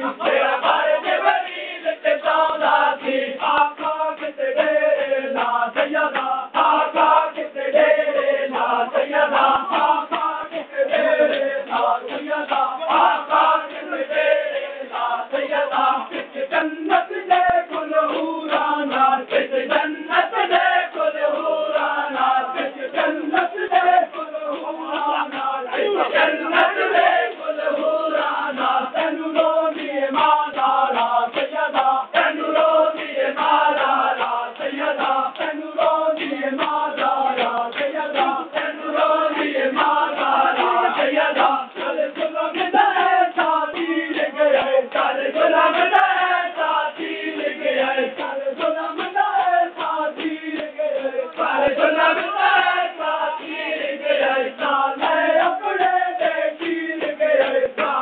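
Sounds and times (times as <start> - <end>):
men chanting in unison: 0.0 - 58.0
hands slapping bare chests: 29.4 - 45.2.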